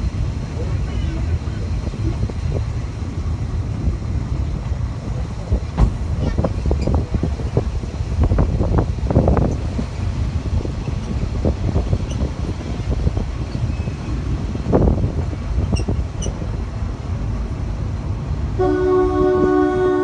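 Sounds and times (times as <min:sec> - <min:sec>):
train rumbling: 0:00.0 - 0:20.0
train whistle: 0:18.6 - 0:20.0.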